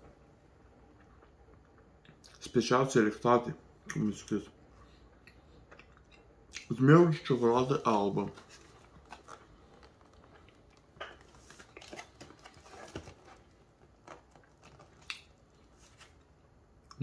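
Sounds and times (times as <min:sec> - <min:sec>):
plastic package crinkling: 0:07.7 - 0:16.2.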